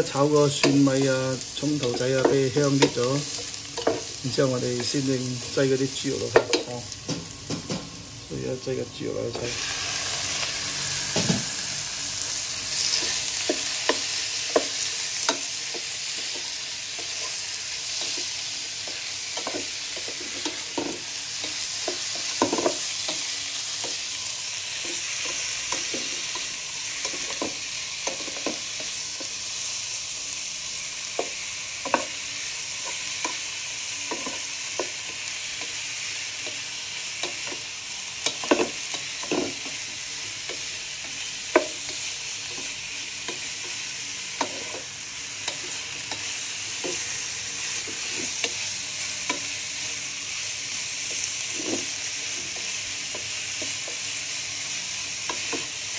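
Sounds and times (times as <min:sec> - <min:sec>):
meat sizzling in hot oil: 0:00.0 - 0:55.9
spatula scraping a wok: 0:09.4 - 0:28.9, 0:41.2 - 0:50.0, 0:51.0 - 0:53.7.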